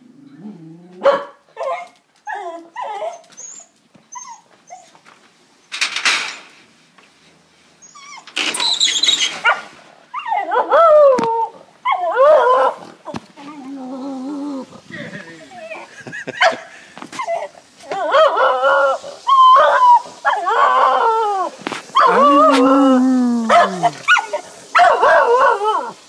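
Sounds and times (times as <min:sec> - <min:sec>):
dog barking and yelping: 0:01.0 - 0:04.9, 0:09.3 - 0:12.9, 0:15.5 - 0:26.0.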